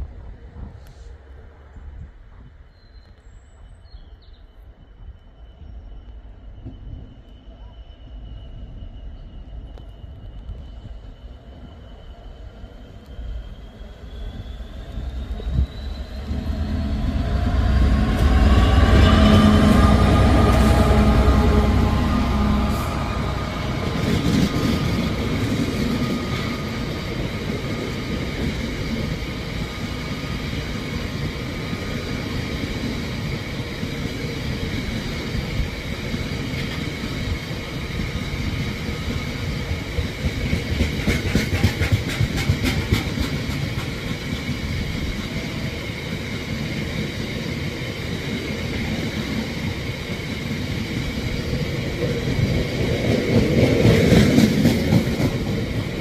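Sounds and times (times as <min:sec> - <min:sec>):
train wagons rumbling on rails: 0:06.3 - 0:56.0
wheels clacking over rail joints: 0:40.0 - 0:45.4.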